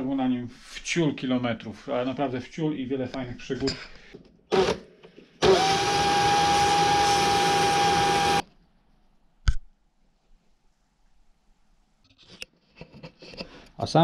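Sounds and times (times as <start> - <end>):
cordless drill whining: 4.5 - 4.8, 5.4 - 8.4.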